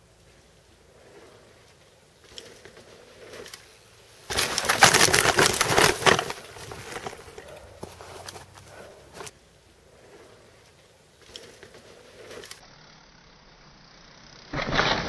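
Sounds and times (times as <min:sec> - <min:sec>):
bike crash knocks and scraping: 0:04.2 - 0:09.3
clatter and rustling: 0:04.3 - 0:09.3.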